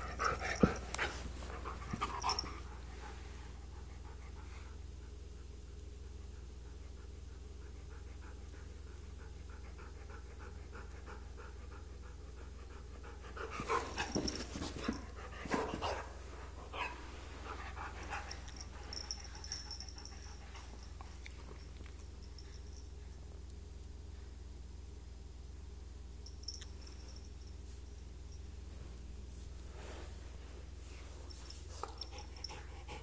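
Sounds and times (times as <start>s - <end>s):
dog and cat playing: 0.0s - 24.7s, 26.2s - 33.0s
dog panting: 31.8s - 33.0s.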